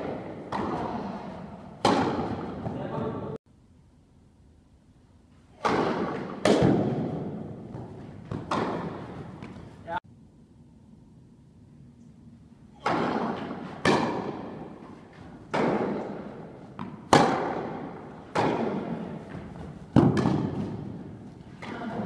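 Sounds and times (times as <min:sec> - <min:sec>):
tennis ball hit with echo: 0:00.0 - 0:03.3, 0:05.5 - 0:09.6, 0:12.8 - 0:14.8, 0:15.4 - 0:22.0.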